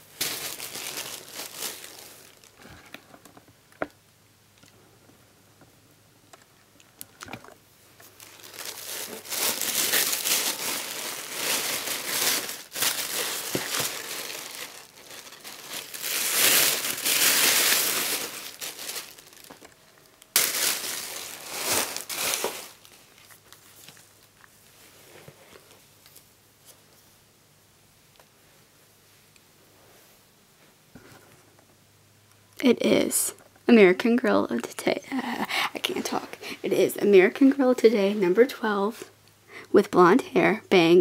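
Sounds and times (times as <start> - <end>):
tissue paper crinkling: 0.0 - 2.7, 8.0 - 25.7.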